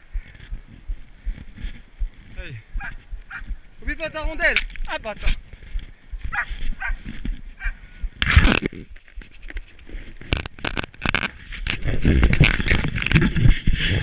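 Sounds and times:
camera rustle and knocks: 4.5 - 7.6, 8.2 - 14.0
footsteps running on snow: 5.2 - 7.8.

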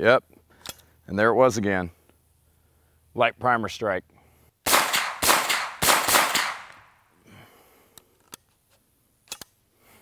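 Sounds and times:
rifle shots with echo: 4.7 - 6.9
faint sharp gun clicks: 9.2 - 9.6.

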